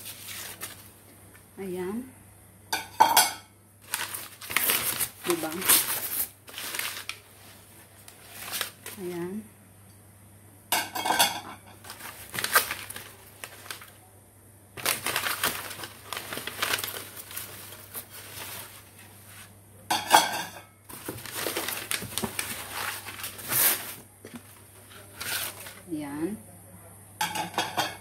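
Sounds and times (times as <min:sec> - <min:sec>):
packing paper rustling: 0:00.0 - 0:01.0, 0:03.8 - 0:09.2, 0:11.8 - 0:14.0, 0:14.8 - 0:19.6, 0:20.9 - 0:25.9
ceramic bowls clinking: 0:19.9 - 0:20.7.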